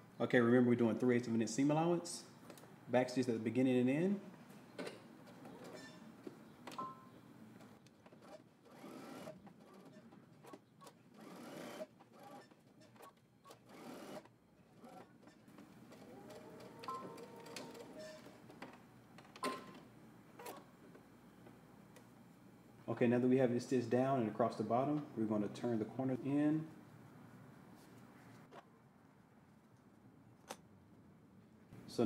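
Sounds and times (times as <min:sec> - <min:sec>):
sewing machine stitching: 0:08.1 - 0:18.3.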